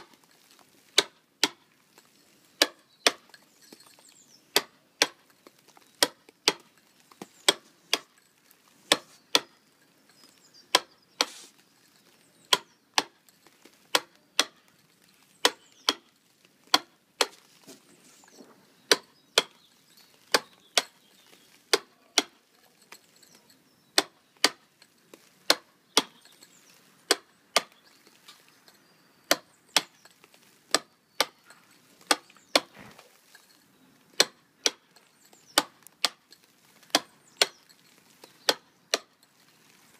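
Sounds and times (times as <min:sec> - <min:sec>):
chisel chipping stone: 0:00.9 - 0:01.7, 0:02.6 - 0:08.2, 0:08.9 - 0:09.6, 0:10.5 - 0:11.4, 0:12.3 - 0:14.8, 0:15.4 - 0:17.4, 0:18.8 - 0:24.6, 0:25.2 - 0:28.1, 0:28.7 - 0:32.9, 0:34.2 - 0:39.2.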